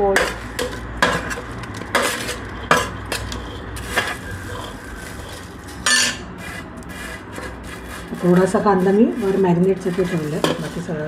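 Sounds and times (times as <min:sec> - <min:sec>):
steel spoon clinking on plate: 0:05.9 - 0:06.2.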